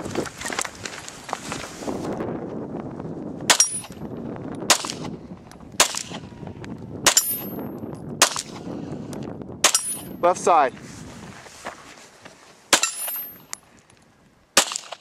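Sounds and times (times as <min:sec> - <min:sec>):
pistol shots: 0:04.7 - 0:05.1, 0:05.8 - 0:06.2, 0:08.2 - 0:08.6, 0:12.7 - 0:13.4, 0:14.6 - 0:15.0.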